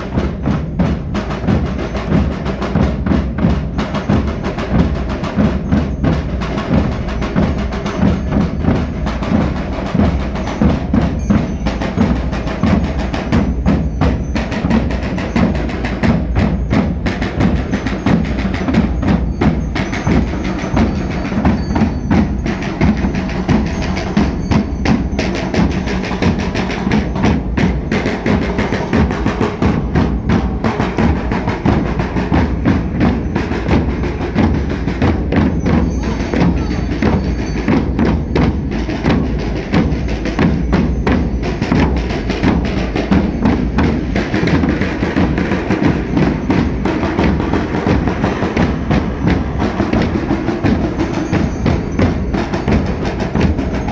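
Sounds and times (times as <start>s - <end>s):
bass and snare drums playing: 0.0s - 53.9s.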